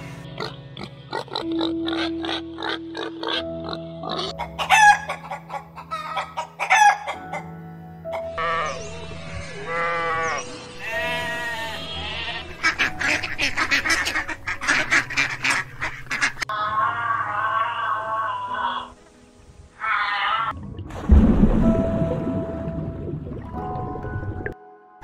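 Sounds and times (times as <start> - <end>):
background music: 0.0 - 25.0
pig squealing and grunting: 1.1 - 4.3, 16.5 - 18.9
sheep bleating: 9.6 - 12.6.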